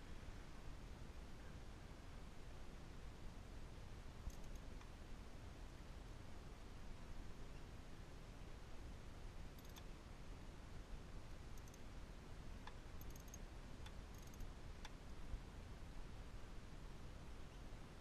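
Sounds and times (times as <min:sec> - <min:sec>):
steady low hiss: 0:00.0 - 0:18.0
socket ratchet clicks: 0:09.6 - 0:09.8, 0:13.0 - 0:13.4, 0:14.1 - 0:14.4.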